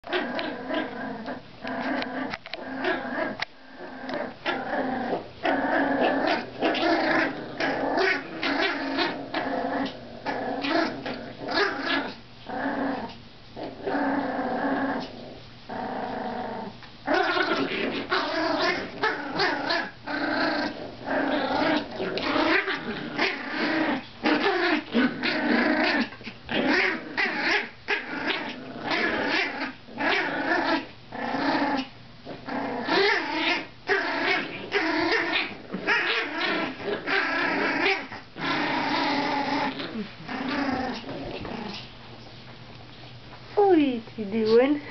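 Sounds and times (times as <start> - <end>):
puppies play-growling: 0.0 - 43.7.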